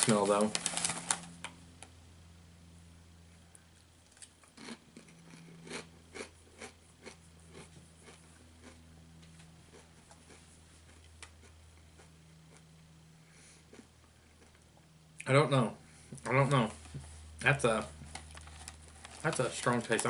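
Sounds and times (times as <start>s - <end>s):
potato chip crunching: 0.0s - 1.3s, 4.0s - 8.8s, 17.4s - 20.0s
faint low hum: 0.0s - 20.0s.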